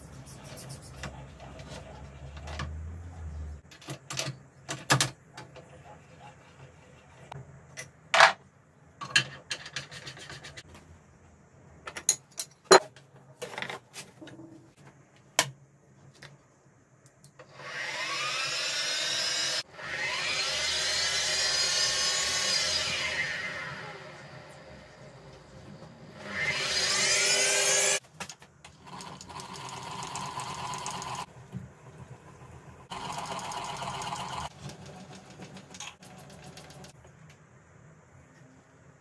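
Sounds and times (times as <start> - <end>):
mill motor whine: 17.5 - 28.0.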